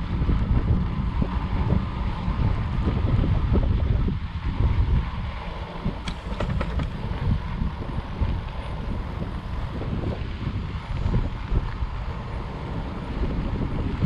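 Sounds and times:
tyres rumbling on dirt trail: 0:00.0 - 0:14.0
wind buffeting microphone: 0:00.0 - 0:14.0
sharp rattling clicks: 0:06.0 - 0:07.0.

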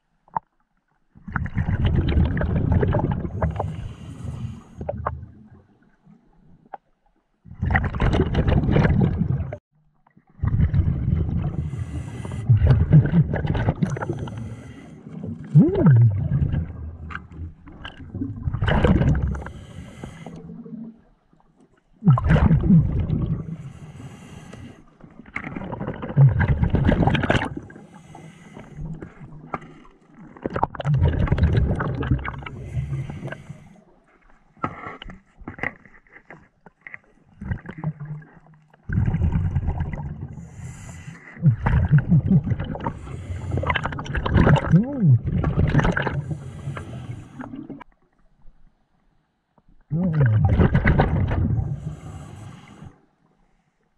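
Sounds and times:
exhaled bubbles underwater: 0:01.2 - 0:06.7, 0:07.4 - 0:09.6, 0:10.2 - 0:24.2, 0:25.0 - 0:34.0, 0:37.3 - 0:48.0, 0:49.8 - 0:52.9
hissing regulator breath in: 0:14.0 - 0:15.1, 0:19.4 - 0:20.4, 0:23.6 - 0:24.8, 0:46.3 - 0:47.5, 0:51.8 - 0:53.0.

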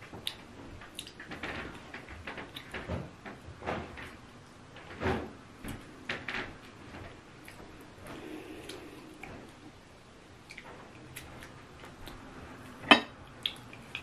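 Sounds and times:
wet chewing smacks and clicks: 0:00.2 - 0:01.3, 0:10.4 - 0:14.0.

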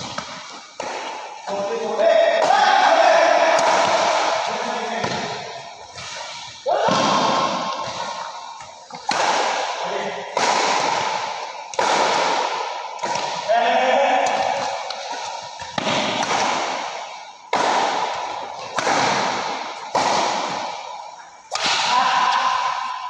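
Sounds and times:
badminton racket hitting shuttlecock: 0:03.4 - 0:13.5.

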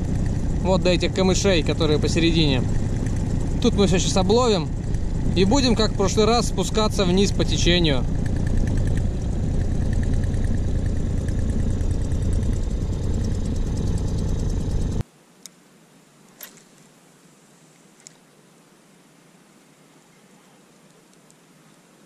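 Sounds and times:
outboard motor running: 0:00.0 - 0:15.0
faint clicks: 0:20.8 - 0:21.4.

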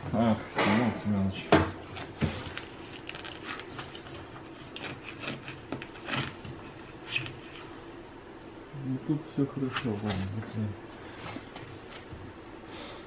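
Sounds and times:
gloved hands rustling insulation: 0:01.8 - 0:07.9.

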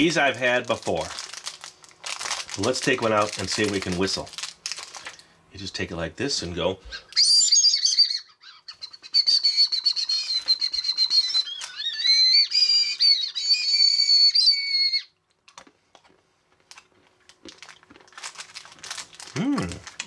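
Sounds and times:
candy whistle blown: 0:07.0 - 0:08.3, 0:09.1 - 0:15.1.

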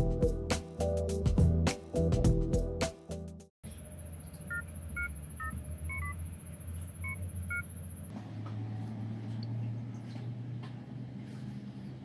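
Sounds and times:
touch-tone keypad beeps: 0:04.5 - 0:06.2.

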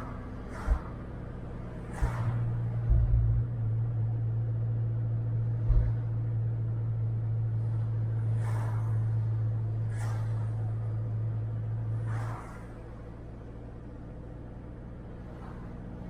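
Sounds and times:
car engine and road drone: 0:00.0 - 0:16.0
short low thumps: 0:02.0 - 0:03.9, 0:05.4 - 0:06.7.

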